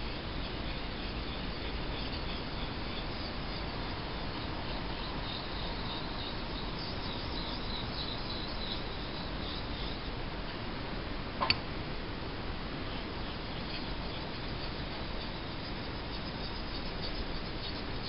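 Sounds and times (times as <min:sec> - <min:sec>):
sharp click: 0:11.4 - 0:11.6.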